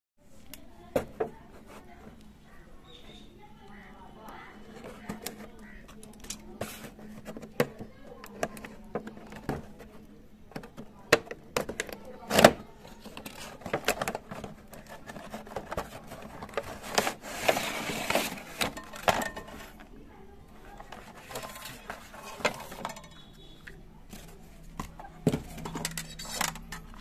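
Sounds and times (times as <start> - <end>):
cardboard scraping rustle: 13.0 - 19.8, 20.7 - 22.8.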